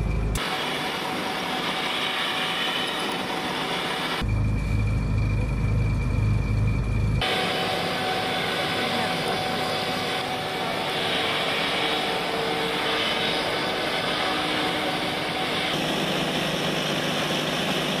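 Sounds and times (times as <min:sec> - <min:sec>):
vehicle engine humming: 0:04.2 - 0:18.0.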